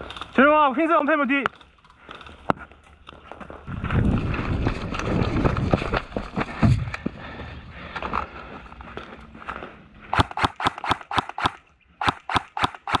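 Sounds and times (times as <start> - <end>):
running footsteps on sand: 2.7 - 10.3.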